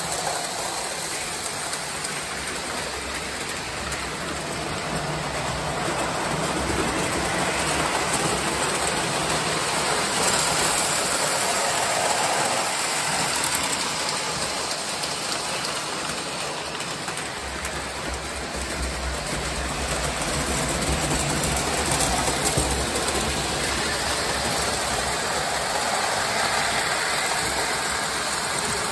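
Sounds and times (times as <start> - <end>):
model train wheels clattering on rails: 0.0 - 28.9.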